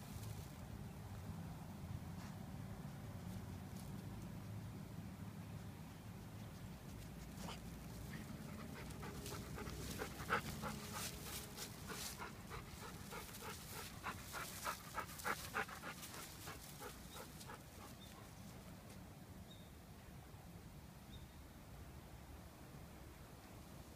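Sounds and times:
rustling of dry grass: 0:00.0 - 0:01.0, 0:06.2 - 0:19.0
dog panting: 0:07.2 - 0:18.4.

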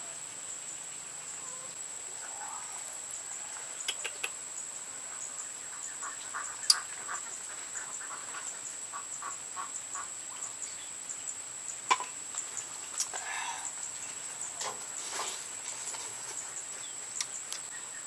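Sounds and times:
chickens clucking: 0:03.6 - 0:04.4, 0:05.0 - 0:10.4.

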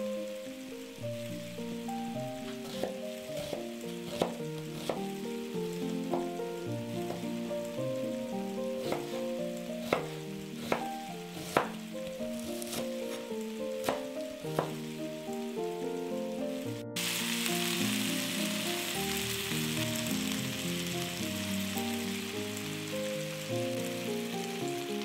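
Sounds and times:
melodic background music: 0:00.0 - 0:25.0
knife knocking on cutting board: 0:14.6 - 0:14.8.

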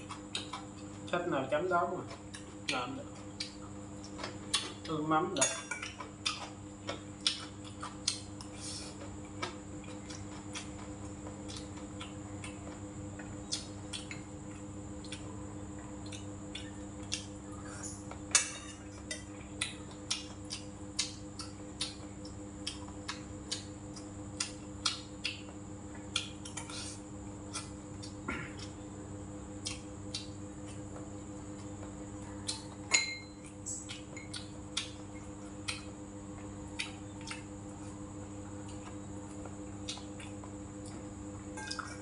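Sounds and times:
chewing and mouth clicks: 0:00.0 - 0:01.1, 0:02.0 - 0:05.0, 0:05.8 - 0:28.8, 0:29.5 - 0:42.0
faint steady hum: 0:00.0 - 0:42.0
utensils clinking on metal bowl: 0:05.4 - 0:06.0, 0:32.9 - 0:33.4.

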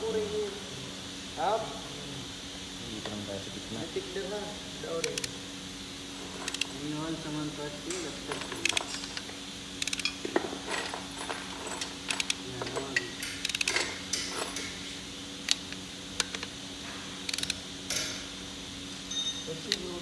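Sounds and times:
ratchet wrench clicking: 0:06.4 - 0:06.7, 0:07.9 - 0:10.2, 0:11.8 - 0:12.4, 0:13.0 - 0:14.8, 0:17.3 - 0:18.1.

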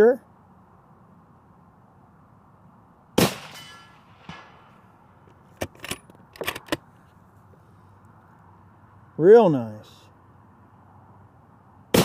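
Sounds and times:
bullet striking steel target: 0:03.2 - 0:04.8
suppressed rifle shot: 0:03.2 - 0:04.8.

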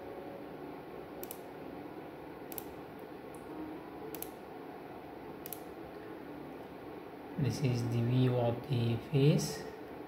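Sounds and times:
faint room hum: 0:00.0 - 0:10.0
computer control clicks: 0:01.2 - 0:01.5, 0:02.5 - 0:02.7, 0:04.1 - 0:04.4, 0:05.4 - 0:05.7.

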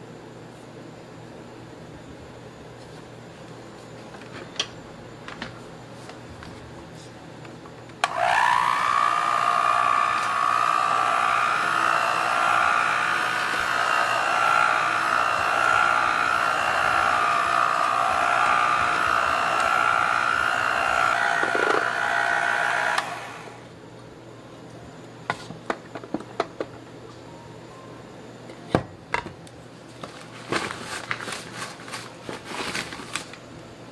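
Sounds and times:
beaters mixing batter in metal bowl: 0:08.0 - 0:23.5
electric hand mixer whining: 0:08.0 - 0:23.7.

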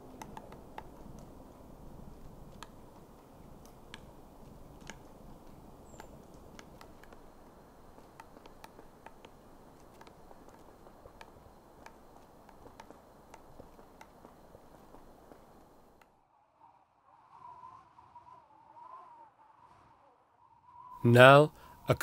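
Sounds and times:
woodpecker pecking bark: 0:00.0 - 0:16.0.

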